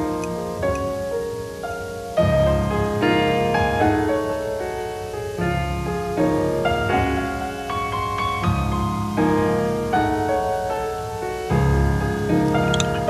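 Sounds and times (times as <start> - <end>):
slow piano piece: 0.0 - 13.0.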